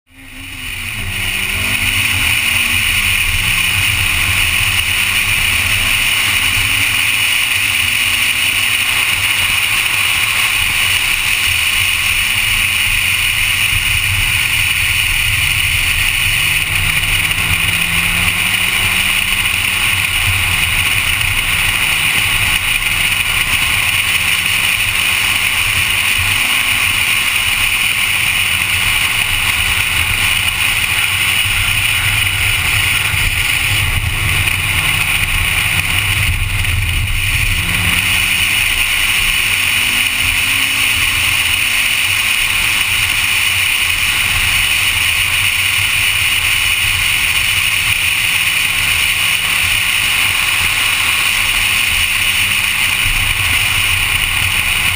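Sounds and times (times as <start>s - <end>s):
car engine revving: 0.1s - 54.9s
wind and road noise: 0.1s - 54.9s.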